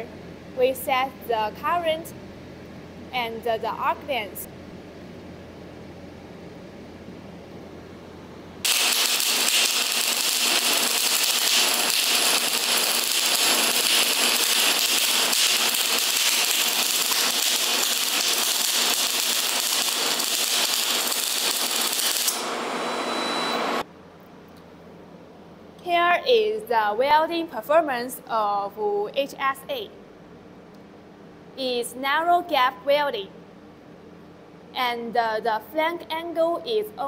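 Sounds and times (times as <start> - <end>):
welding arc crackling hiss: 8.6 - 23.9.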